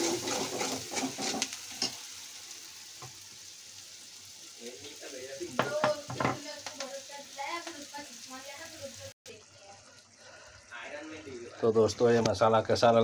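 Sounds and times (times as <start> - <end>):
steel spoon scraping a pan: 0.0 - 2.1
masala sizzling in oil: 0.0 - 13.0.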